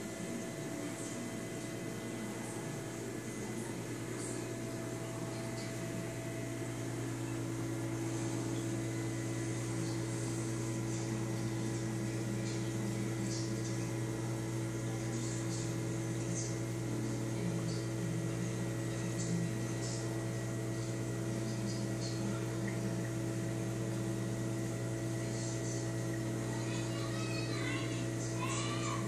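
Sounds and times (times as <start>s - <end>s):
aquarium equipment humming: 0.0s - 29.0s.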